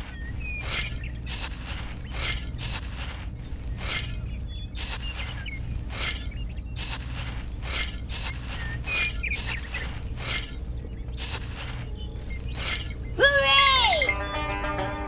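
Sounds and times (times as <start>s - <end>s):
rice grains rustling: 0.0s - 13.2s
steady low hum: 0.0s - 13.2s.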